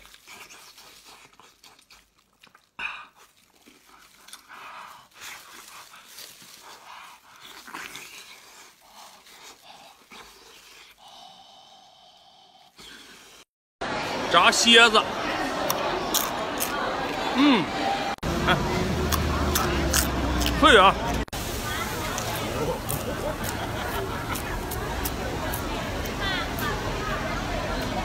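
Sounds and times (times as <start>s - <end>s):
man chewing noisily: 0.0s - 13.5s, 15.5s - 28.0s
heavy breathing: 4.4s - 13.5s.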